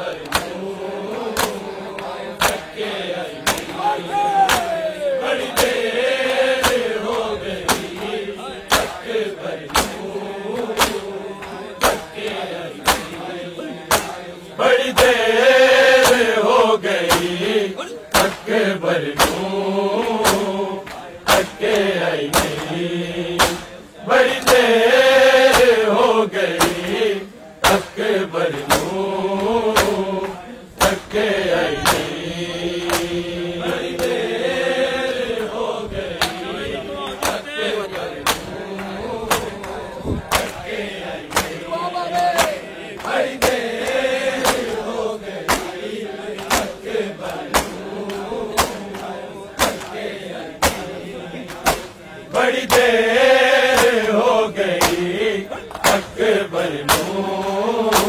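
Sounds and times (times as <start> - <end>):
men chanting in unison: 0.0 - 58.0
hands slapping chests: 0.1 - 13.3, 13.9 - 14.2, 16.0 - 16.3, 17.0 - 17.5, 18.1 - 22.8, 23.4 - 24.7, 25.5 - 25.9, 26.5 - 27.0, 27.6 - 34.2, 37.1 - 52.0, 52.6 - 53.0, 53.7 - 58.0.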